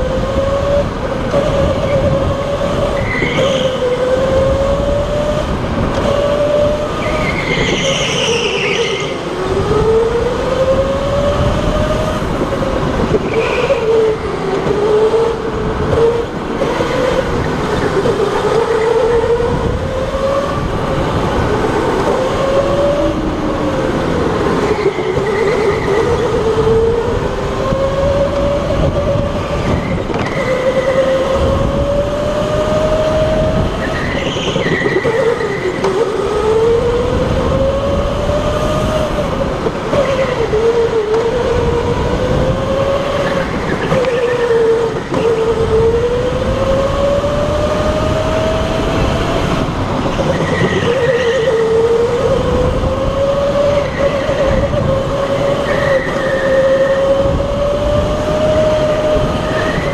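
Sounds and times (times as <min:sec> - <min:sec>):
electric go-kart motor whining: 0:00.0 - 0:59.9
tyres rumbling on track: 0:00.0 - 0:59.9
high squeal: 0:01.5 - 0:05.5, 0:06.2 - 0:12.2, 0:13.2 - 0:15.4, 0:24.6 - 0:39.4, 0:40.0 - 0:49.4, 0:50.0 - 0:59.9.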